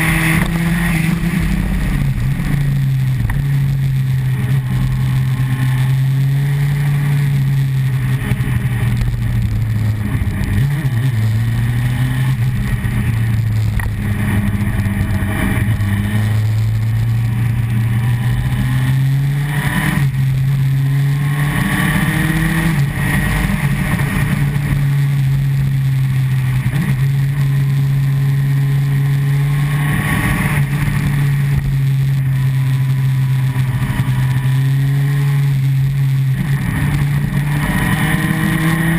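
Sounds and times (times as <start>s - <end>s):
wind noise: 0.0s - 27.6s
motorcycle engine revving: 0.0s - 38.9s.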